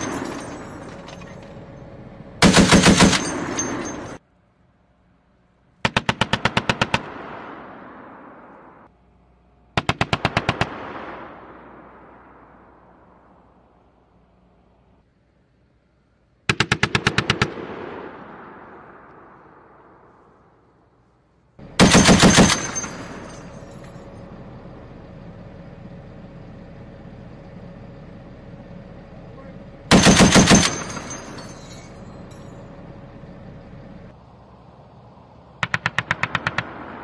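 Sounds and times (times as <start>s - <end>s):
rolling gunfire echo: 0.0s - 4.2s, 5.7s - 8.9s, 9.7s - 13.9s, 16.4s - 24.4s, 29.9s - 32.8s, 35.6s - 37.0s
machine gun bursts: 2.4s - 4.2s, 21.7s - 23.8s, 29.9s - 31.8s.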